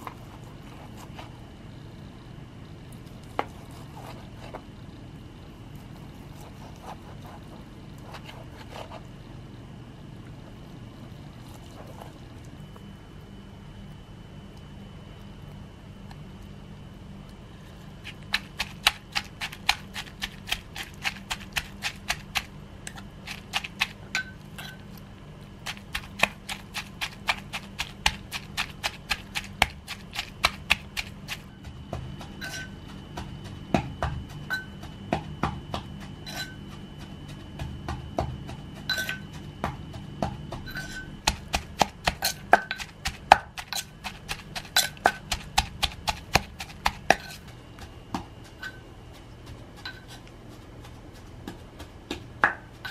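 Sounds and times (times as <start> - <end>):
pestle pounding in mortar: 18.0 - 24.4, 25.6 - 48.7.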